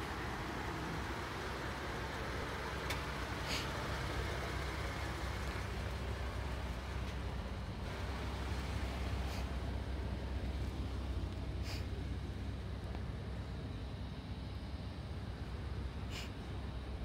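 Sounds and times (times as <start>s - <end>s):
pickup truck engine idling: 0.0s - 17.0s
short hiss: 11.6s - 11.9s.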